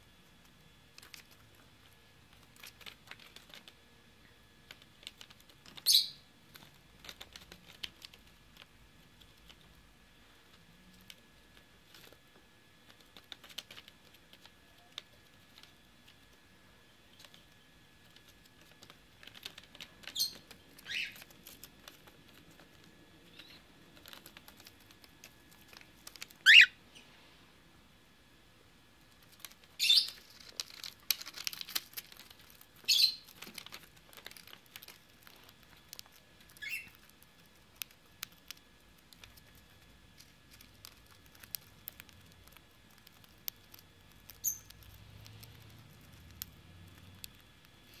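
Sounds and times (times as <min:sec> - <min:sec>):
cockatiel chick squeaky calls: 0:05.8 - 0:06.2, 0:20.2 - 0:21.2, 0:26.4 - 0:26.8, 0:32.9 - 0:33.2, 0:36.6 - 0:36.9.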